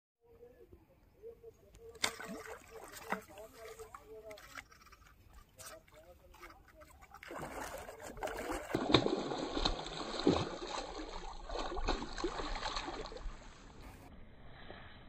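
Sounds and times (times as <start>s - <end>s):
fish splashing in water: 2.0s - 14.0s.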